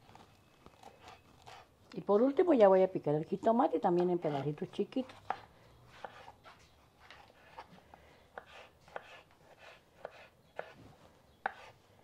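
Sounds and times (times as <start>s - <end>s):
knife chopping on wooden board: 5.0s - 6.3s, 8.4s - 10.8s, 11.4s - 11.7s.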